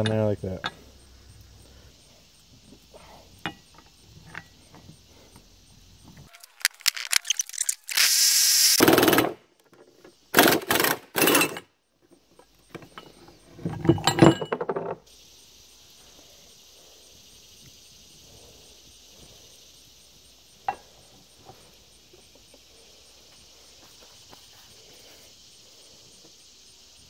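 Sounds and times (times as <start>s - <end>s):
faint steady hiss: 0.0s - 10.4s, 11.8s - 27.0s
metal clanking and scraping: 12.8s - 14.9s.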